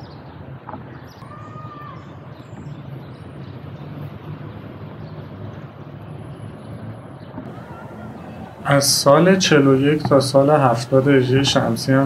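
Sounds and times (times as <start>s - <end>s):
distant city traffic rumble: 0.0s - 12.0s.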